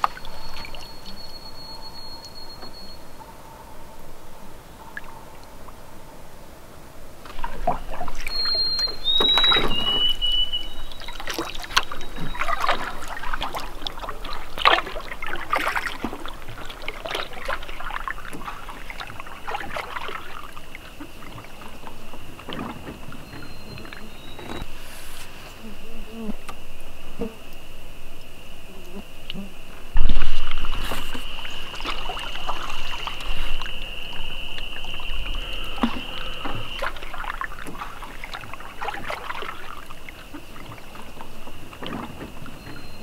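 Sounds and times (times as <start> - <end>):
whistled notes: 0.0 - 4.0, 7.8 - 13.3, 23.1 - 24.8, 30.0 - 38.2, 42.6 - 43.0
paddle splashing water: 0.0 - 5.8, 7.1 - 26.6, 29.2 - 43.0.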